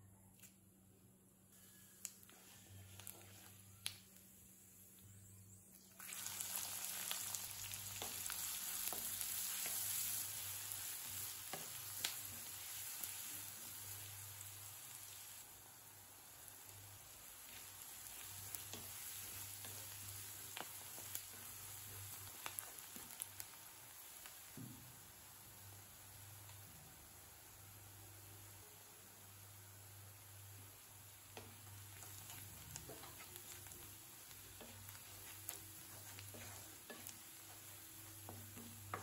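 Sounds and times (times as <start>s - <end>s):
onions sizzling in oil: 1.6s - 4.9s, 5.8s - 39.0s
spatula tapping and scraping pan: 31.3s - 33.8s, 34.5s - 39.0s.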